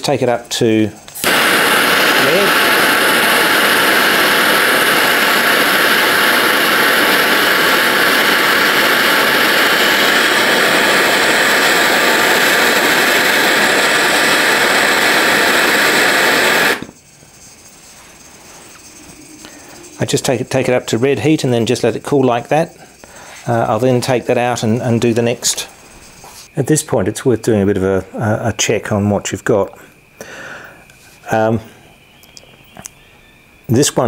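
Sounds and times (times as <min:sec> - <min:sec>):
gas torch flame hissing: 0:00.2 - 0:26.5.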